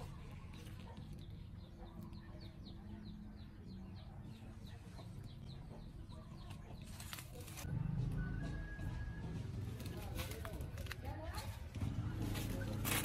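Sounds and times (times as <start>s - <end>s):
chick chirping: 0.0s - 7.0s
scraping rustle: 9.6s - 13.0s.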